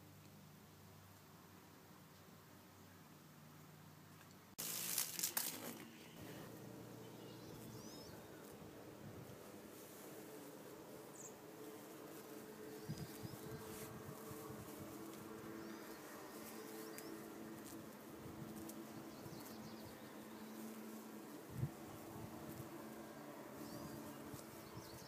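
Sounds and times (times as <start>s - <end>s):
bees buzzing: 4.6s - 25.0s.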